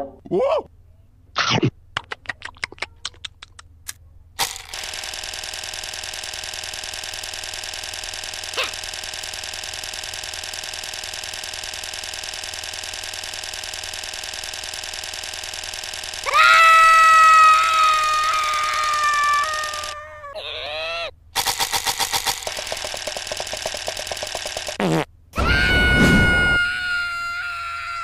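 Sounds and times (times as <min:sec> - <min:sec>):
quick clicks: 0:02.0 - 0:16.4, 0:17.9 - 0:20.0, 0:21.4 - 0:24.8
toy slot machine whirring: 0:04.4 - 0:16.4, 0:17.7 - 0:20.0, 0:21.4 - 0:24.8
comic sound effects: 0:21.4 - 0:26.7.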